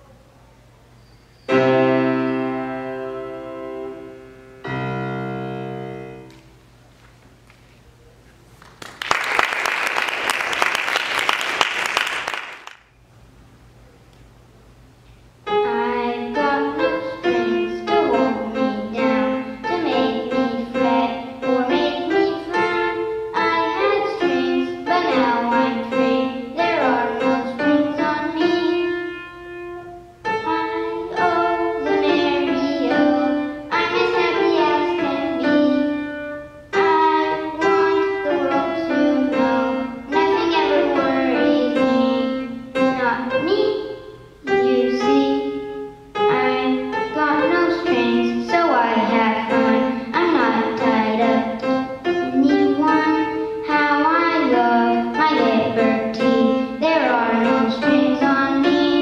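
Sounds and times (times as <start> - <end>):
grand piano playing: 1.5 - 6.6, 15.4 - 59.0
applause: 8.6 - 12.9
boy singing: 15.6 - 29.0, 30.3 - 35.9, 36.8 - 45.6, 46.2 - 59.0.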